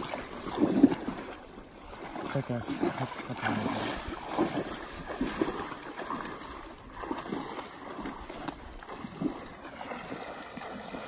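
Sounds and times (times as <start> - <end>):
water sloshing and splashing: 0.0 - 11.0.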